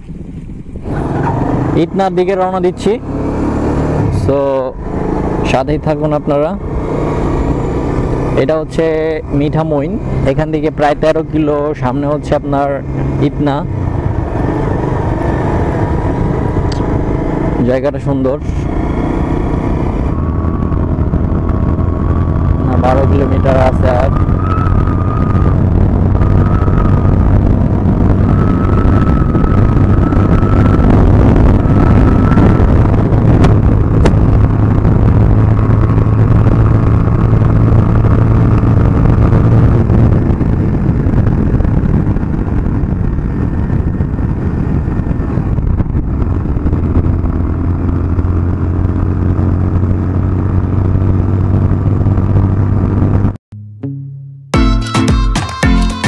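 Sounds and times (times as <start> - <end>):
motorcycle engine running: 0.0 - 53.4
road noise: 0.0 - 53.4
wind noise on microphone: 0.0 - 53.4.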